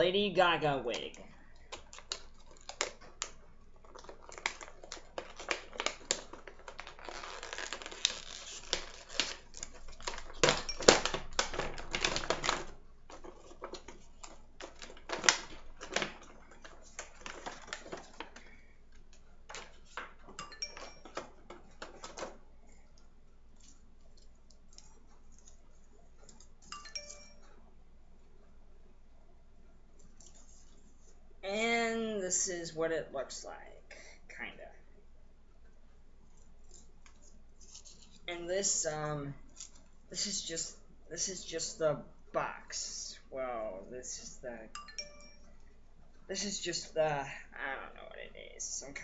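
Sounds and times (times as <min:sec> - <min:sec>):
cardboard box and packaging opened: 0:03.8 - 0:18.4.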